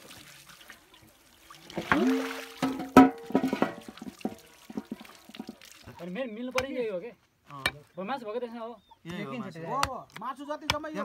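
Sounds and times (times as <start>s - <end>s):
water splashing and dripping: 0.0s - 6.2s.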